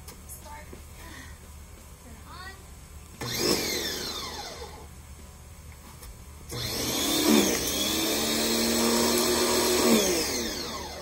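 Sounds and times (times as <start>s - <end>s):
pressure washer motor whining: 3.2s - 4.9s, 6.5s - 11.0s.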